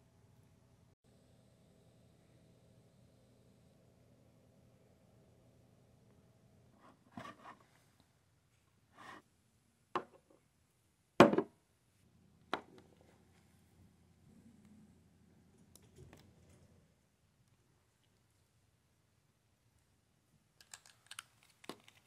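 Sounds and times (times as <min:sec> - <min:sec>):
bottles knocking on wooden desk: 0:11.2 - 0:11.5.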